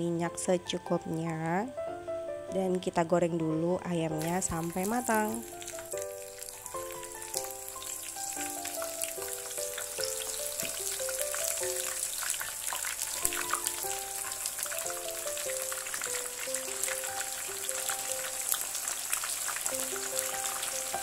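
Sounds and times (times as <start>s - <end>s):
soft background music: 0.0s - 21.0s
chicken sizzling in hot oil: 4.2s - 21.0s.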